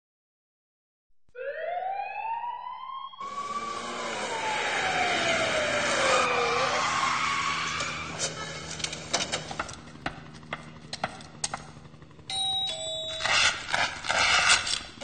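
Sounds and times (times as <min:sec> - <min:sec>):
siren wailing: 0:01.3 - 0:09.0.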